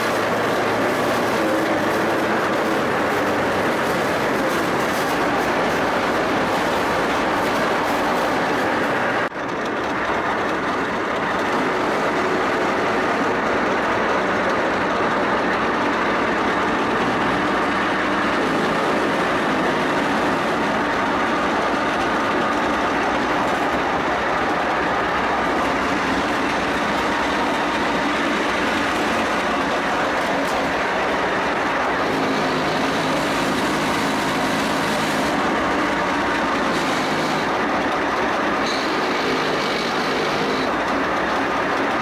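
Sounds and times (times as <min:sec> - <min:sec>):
diesel engine running: 0:00.0 - 0:42.0
steel tracks clattering: 0:00.0 - 0:42.0.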